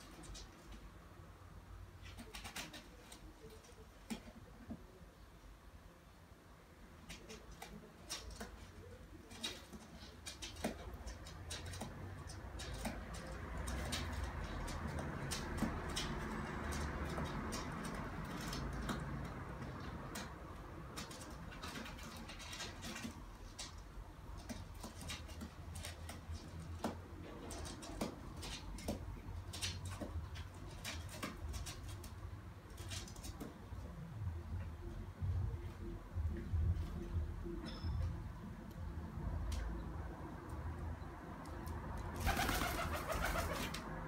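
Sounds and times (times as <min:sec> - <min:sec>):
pigeon rustling twig: 0:42.2 - 0:43.9.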